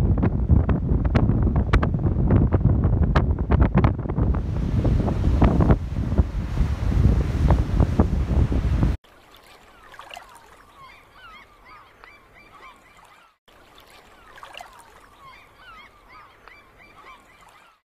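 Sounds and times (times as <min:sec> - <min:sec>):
birds honking: 0:10.6 - 0:13.3, 0:14.1 - 0:17.8.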